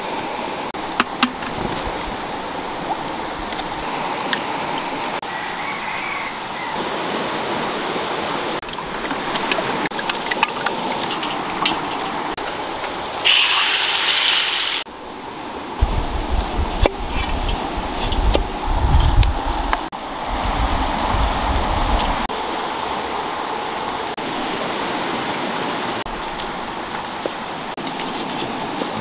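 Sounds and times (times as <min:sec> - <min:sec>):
running water: 0:06.8 - 0:14.9.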